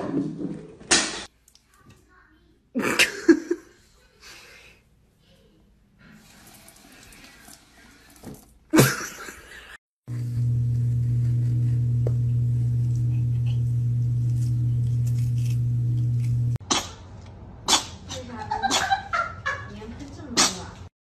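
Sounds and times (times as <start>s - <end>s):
loud low hum: 10.1s - 16.6s.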